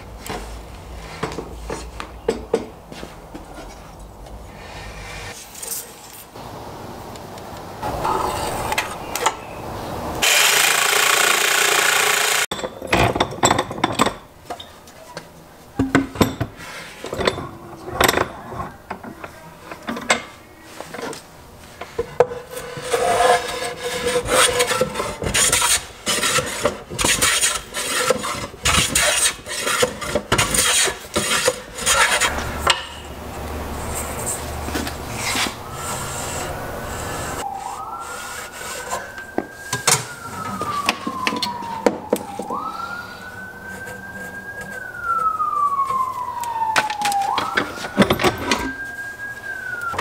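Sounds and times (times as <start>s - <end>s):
siren wailing: 7.8s - 9.4s, 32.2s - 50.0s.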